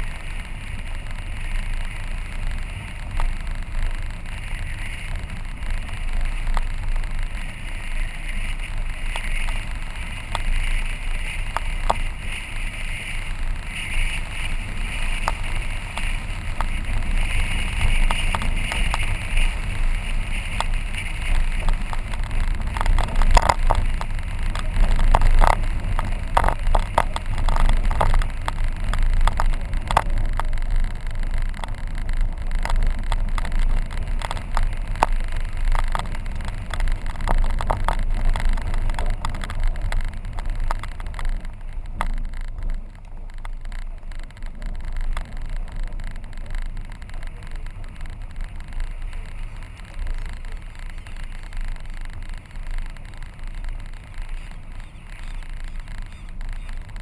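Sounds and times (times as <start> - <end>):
tyres rumbling on gravel road: 0.0 - 57.0
stones knocking under wheels: 13.0 - 57.0.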